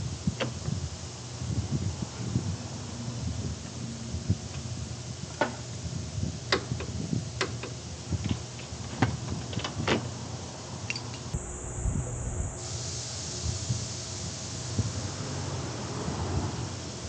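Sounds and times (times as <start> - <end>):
steady low hum: 11.3 - 13.4.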